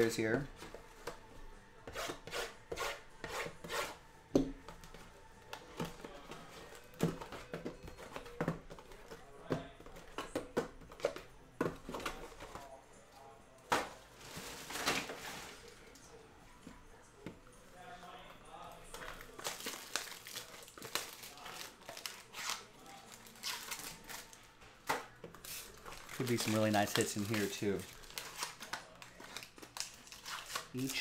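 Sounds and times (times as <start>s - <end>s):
boxes tapping and knocking: 4.3s - 12.7s.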